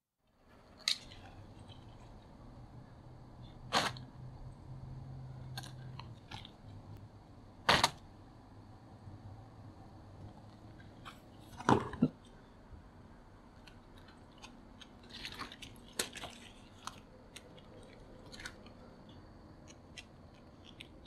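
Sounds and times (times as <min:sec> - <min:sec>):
light crinkling: 0:00.8 - 0:02.5, 0:13.5 - 0:21.0
puppy chewing silicone cover: 0:03.4 - 0:04.2, 0:05.3 - 0:06.8, 0:07.6 - 0:08.1, 0:13.4 - 0:21.0.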